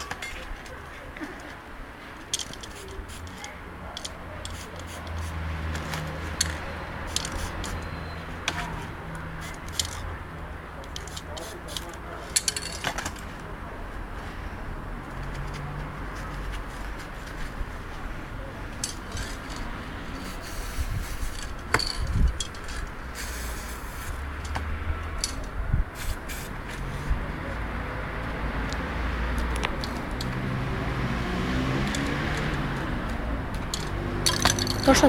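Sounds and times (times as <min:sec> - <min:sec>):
metallic clicks and rattles of cans: 0:02.2 - 0:03.4, 0:33.6 - 0:35.0
spray-paint cans hissing: 0:02.3 - 0:08.2, 0:20.1 - 0:21.9, 0:22.6 - 0:24.2, 0:25.9 - 0:27.0.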